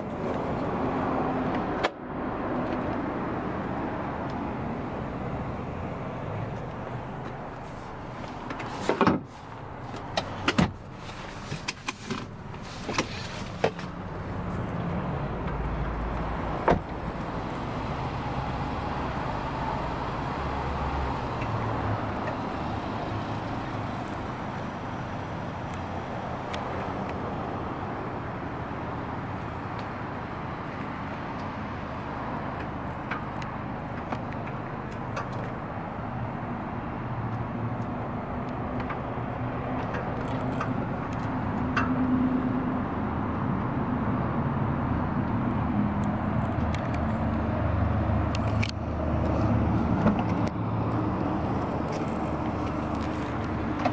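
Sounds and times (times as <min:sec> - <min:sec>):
outdoor background hum: 0:00.0 - 0:53.9
clicks and knocks in car cabin: 0:08.5 - 0:09.3, 0:09.9 - 0:10.8.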